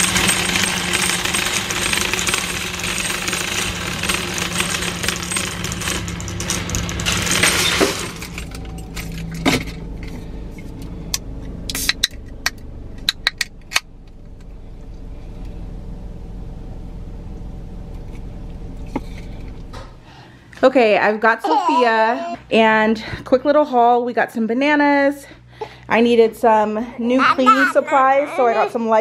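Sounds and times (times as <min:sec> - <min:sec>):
low hum inside a car: 0:08.4 - 0:20.2.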